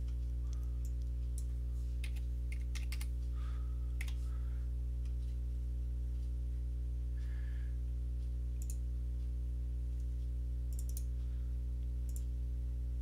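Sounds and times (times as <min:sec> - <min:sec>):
low electrical hum: 0:00.0 - 0:13.0
keyboard keystrokes: 0:02.0 - 0:03.1.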